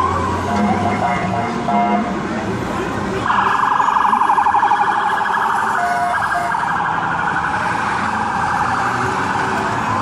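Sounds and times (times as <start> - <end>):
siren warbling yelp: 3.3 - 7.6.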